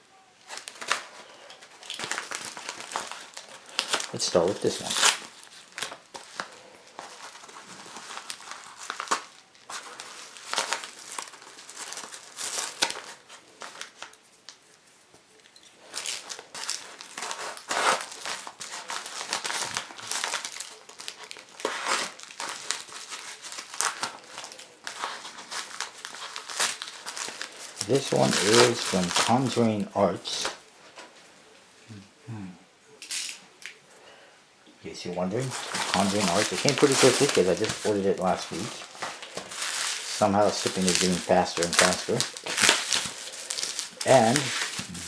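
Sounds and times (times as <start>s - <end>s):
paper mailer crinkling and tearing: 0.4s - 14.2s, 15.8s - 30.6s, 35.0s - 45.0s.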